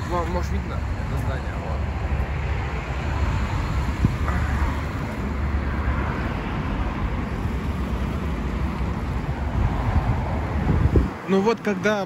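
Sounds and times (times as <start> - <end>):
car passing: 0.0 - 12.0
road traffic hum: 0.0 - 12.0.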